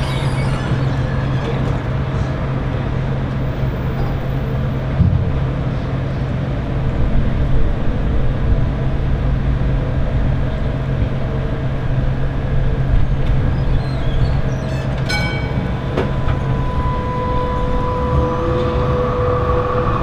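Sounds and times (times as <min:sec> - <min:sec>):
steady high tone: 0:00.0 - 0:02.4, 0:15.1 - 0:20.0
tram equipment humming: 0:00.0 - 0:20.0
short ringing ding: 0:15.1 - 0:15.8.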